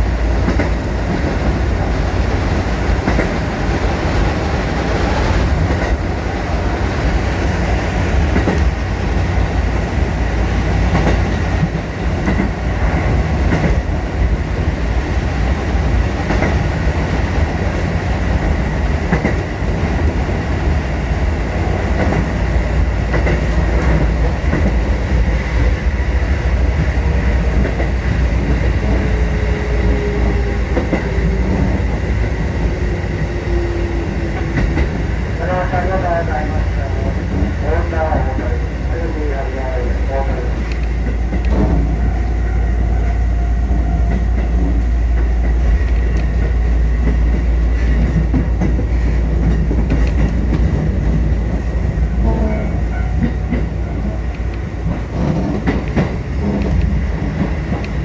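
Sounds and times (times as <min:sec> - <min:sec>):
train wheels rumbling: 0:00.0 - 0:58.0.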